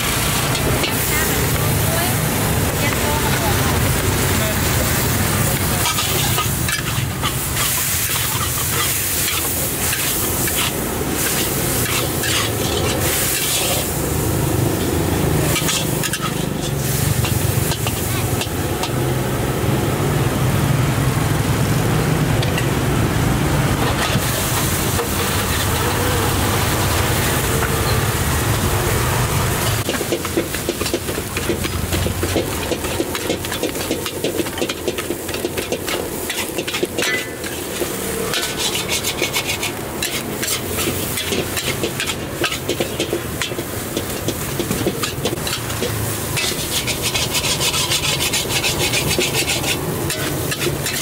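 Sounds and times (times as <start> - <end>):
metal spatula scraping wok: 0.0 - 19.2, 23.7 - 26.0, 29.3 - 51.0
food sizzling: 0.0 - 51.0.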